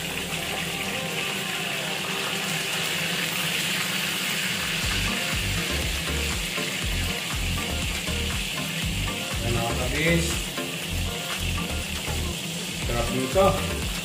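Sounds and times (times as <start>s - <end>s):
chicken frying in hot oil: 0.0s - 14.0s.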